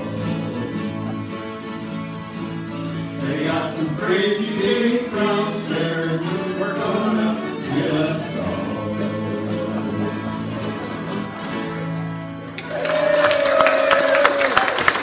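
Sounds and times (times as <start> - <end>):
people singing together: 0.0 - 1.3, 3.2 - 11.4
strummed acoustic guitars: 0.0 - 12.6.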